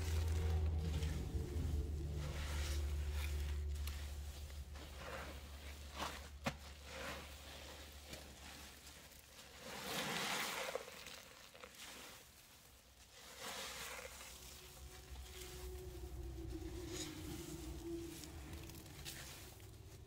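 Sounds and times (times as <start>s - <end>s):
low hum: 0.0s - 6.4s, 14.3s - 20.0s.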